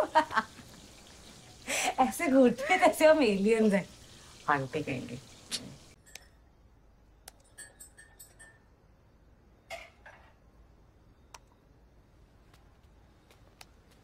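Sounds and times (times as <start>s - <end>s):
faint clicks and clinks: 6.0s - 6.4s, 7.3s - 8.8s.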